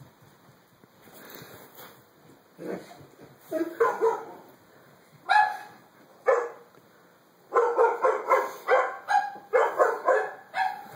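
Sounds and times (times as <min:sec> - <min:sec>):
dog barking: 0:03.5 - 0:04.4, 0:05.3 - 0:06.6, 0:07.5 - 0:10.9.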